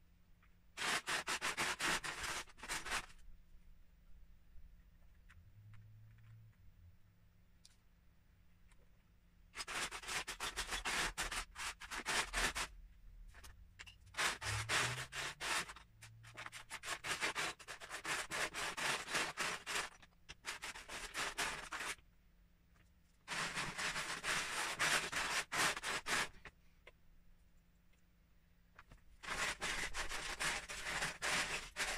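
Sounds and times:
plastic bricks rattling in a tub: 0:13.3 - 0:22.0, 0:23.3 - 0:26.5, 0:28.8 - 0:31.9.

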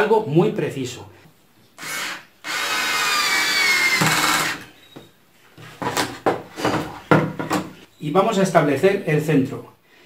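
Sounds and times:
cordless screwdriver whining: 0:01.8 - 0:04.7
wood knocking: 0:04.0 - 0:07.8.

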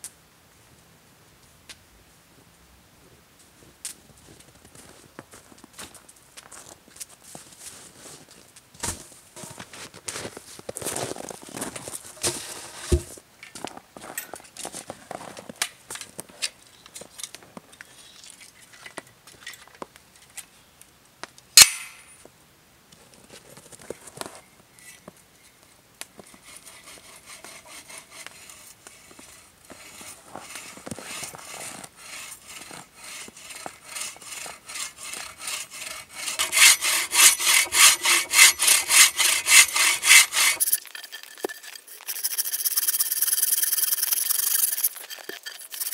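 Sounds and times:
bow saw cutting wood: 0:26.3 - 0:45.9.

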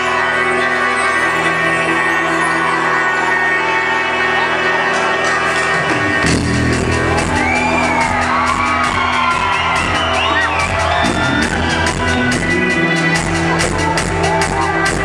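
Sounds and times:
people whooping and shouting: 0:00.0 - 0:15.0
live cumbia band playing: 0:05.7 - 0:15.0.

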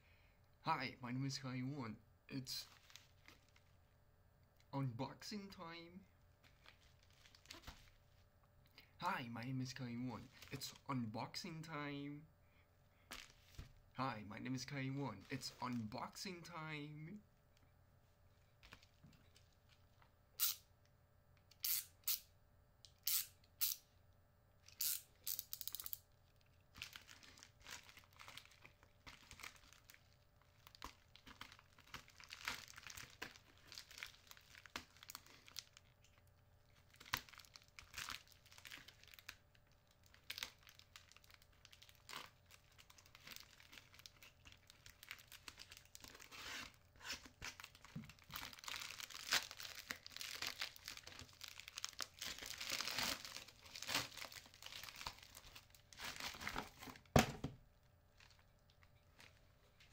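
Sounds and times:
foil and bubble wrap crinkling: 0:02.6 - 0:03.8, 0:06.4 - 0:08.3, 0:25.6 - 0:57.1, 0:58.1 - 0:59.9
foil bag tearing: 0:40.2 - 0:56.6.

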